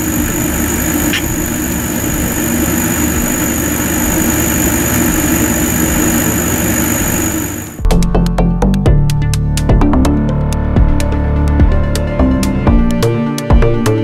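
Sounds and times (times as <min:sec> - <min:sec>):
fan hum and whine: 0:00.0 - 0:07.9.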